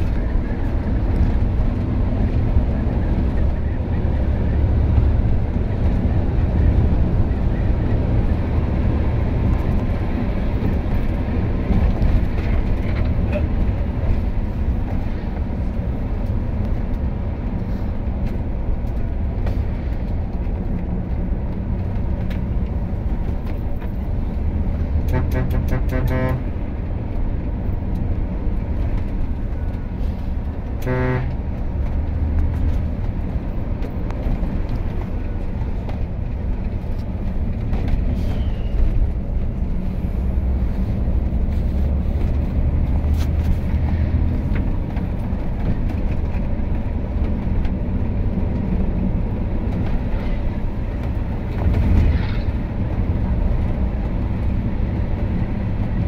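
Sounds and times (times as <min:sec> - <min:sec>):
bus engine and road noise: 0:00.0 - 0:56.0
bus horn: 0:24.8 - 0:26.6, 0:30.7 - 0:31.7.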